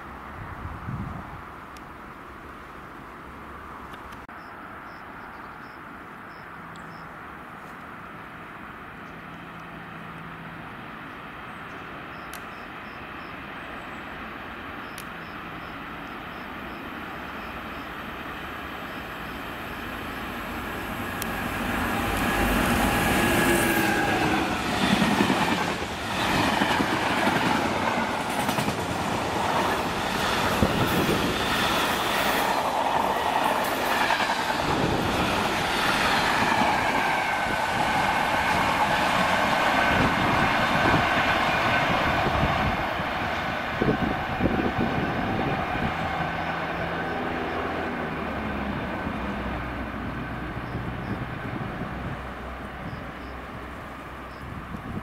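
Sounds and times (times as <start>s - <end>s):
freight train passing: 8.5s - 55.0s
thin tone from train wheels: 15.2s - 48.9s.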